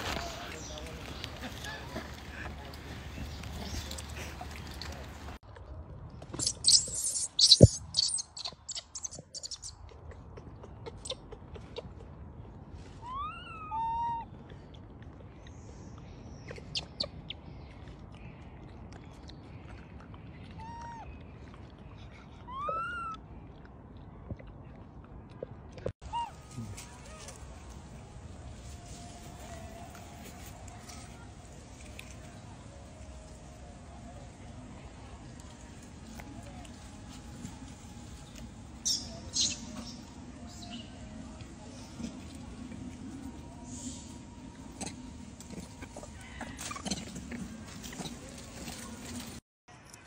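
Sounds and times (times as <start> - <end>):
loud crackling rustle: 0.0 - 5.4.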